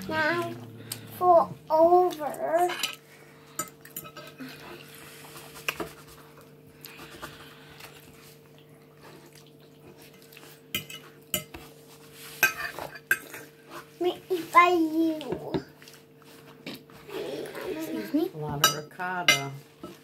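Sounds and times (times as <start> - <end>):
steady low hum: 0.0 - 14.6
fork clinking and scraping on plate: 10.8 - 11.6, 12.4 - 13.5.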